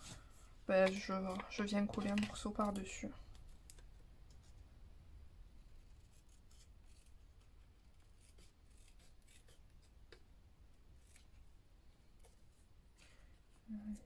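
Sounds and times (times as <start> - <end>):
paper rustle: 0.0 - 3.8
scissors cutting paper: 6.0 - 9.9.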